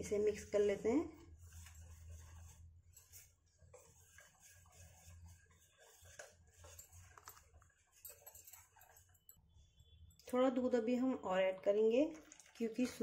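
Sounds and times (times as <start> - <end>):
whisk stirring in metal bowl: 0.0 - 9.4.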